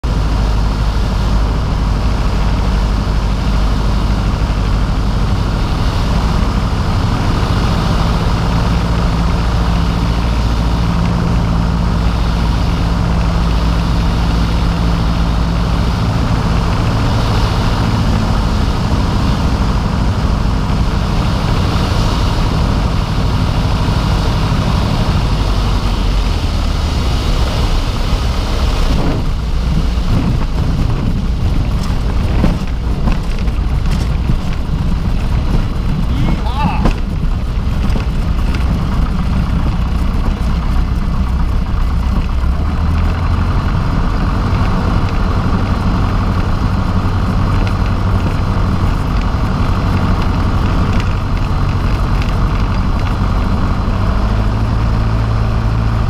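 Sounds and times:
propeller aircraft engine: 0.0 - 56.0
airflow noise: 0.1 - 42.6.

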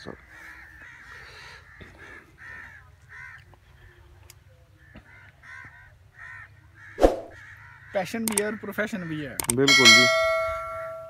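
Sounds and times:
crows cawing: 0.0 - 3.8, 4.8 - 9.6.

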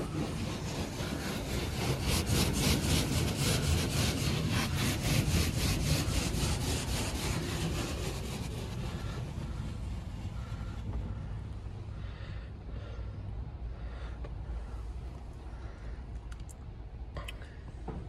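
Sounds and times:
car wash brushes swishing: 0.0 - 11.5.

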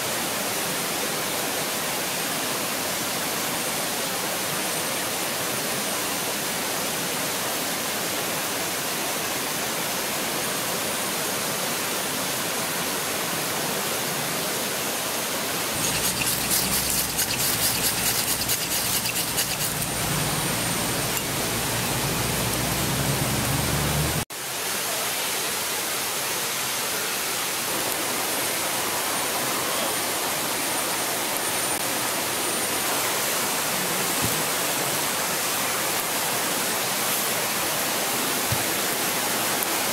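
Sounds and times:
river rushing: 15.6 - 24.3
scraping strikes on a ferro rod: 15.8 - 20.2.

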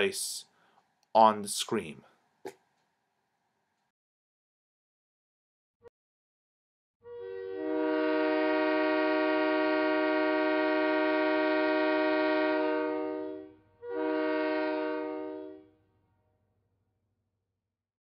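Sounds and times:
locomotive air horn: 7.0 - 15.9.

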